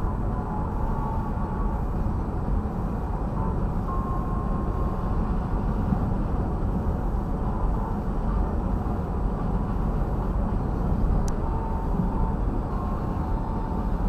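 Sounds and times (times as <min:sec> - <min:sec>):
car road and engine rumble: 0:00.0 - 0:14.0.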